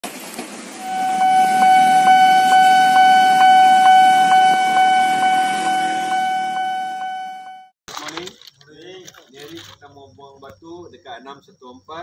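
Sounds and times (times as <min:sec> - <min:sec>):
train horn long blast: 0:00.8 - 0:07.7.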